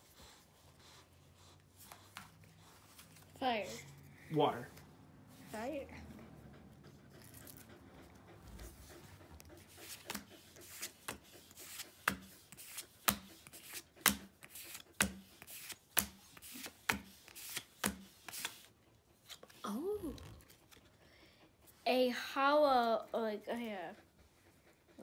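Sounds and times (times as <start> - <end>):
faint handling of cards: 10.7 - 20.8.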